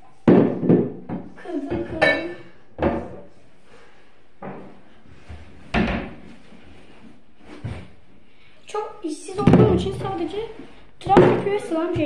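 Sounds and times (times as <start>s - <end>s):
household objects knocking: 0.3s - 2.2s, 9.4s - 10.1s.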